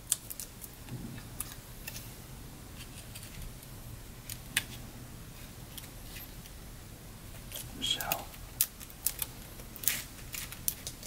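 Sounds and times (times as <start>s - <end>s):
paper handling clicks: 7.5s - 11.0s.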